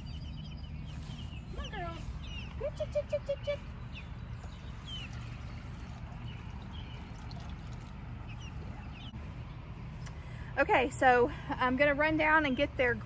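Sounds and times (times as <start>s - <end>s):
chicks peeping: 0.0s - 9.2s
water pouring from plastic jug: 5.7s - 8.0s.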